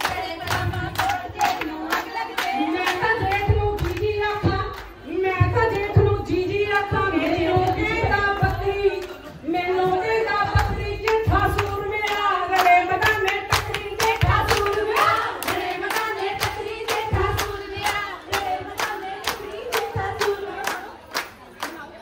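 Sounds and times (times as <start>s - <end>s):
hand clapping: 0.0s - 4.9s, 10.5s - 21.9s
women singing folk song: 0.0s - 21.0s.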